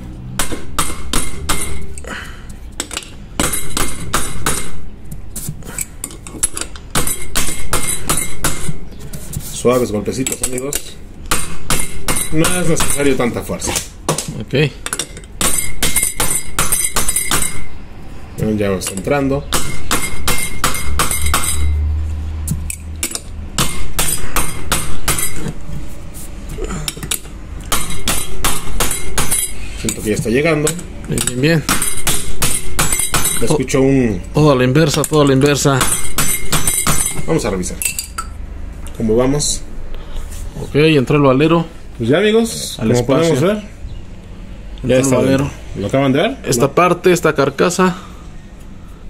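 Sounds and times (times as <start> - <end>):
hammer tapping on metal tool: 0.4 - 2.0, 6.0 - 8.8, 10.2 - 13.2, 14.1 - 17.8, 18.8 - 21.8, 26.9 - 30.0, 30.6 - 33.5, 34.9 - 37.3.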